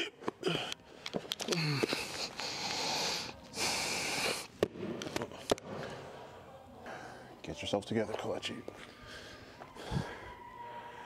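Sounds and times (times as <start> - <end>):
man breathing heavily: 0.4 - 4.5, 8.8 - 10.4.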